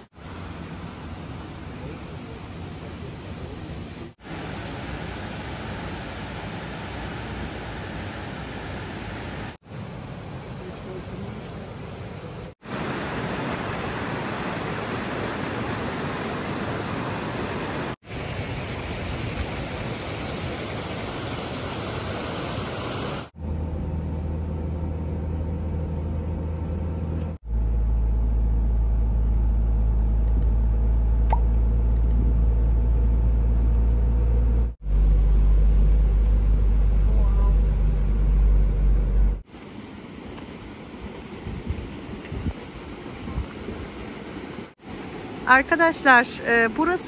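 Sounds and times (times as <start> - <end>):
car engine and road hum: 23.4 - 39.5.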